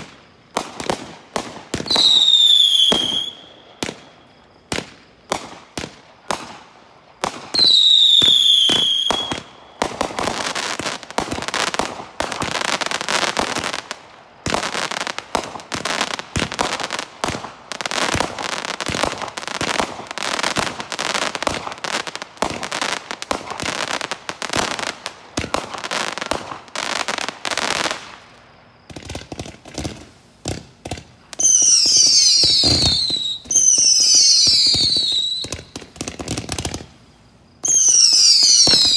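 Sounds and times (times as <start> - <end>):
firework bangs: 0.0 - 37.0, 37.6 - 38.9
firework crackling and popping: 0.0 - 38.9
firework whistle falling in pitch: 1.8 - 3.6, 7.5 - 9.5, 31.4 - 35.6.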